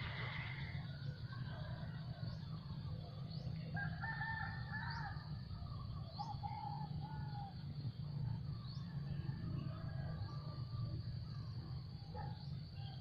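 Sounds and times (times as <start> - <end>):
rooster crowing: 3.8 - 5.3.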